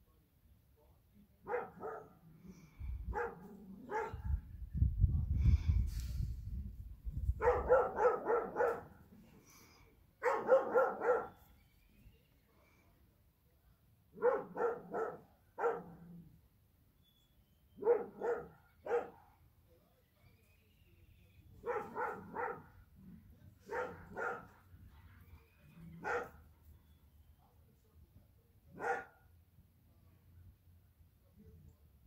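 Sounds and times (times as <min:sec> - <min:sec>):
dog barking: 0:01.5 - 0:02.2, 0:03.1 - 0:04.4, 0:07.4 - 0:09.0, 0:10.2 - 0:11.4, 0:14.2 - 0:16.1, 0:17.8 - 0:19.2, 0:21.6 - 0:22.8, 0:23.6 - 0:24.6, 0:25.9 - 0:26.4, 0:28.7 - 0:29.3.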